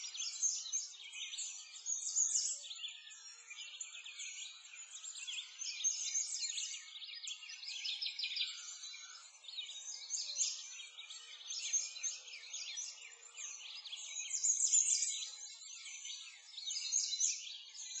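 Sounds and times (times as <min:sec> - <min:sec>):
songbirds chirping: 0:00.0 - 0:18.0.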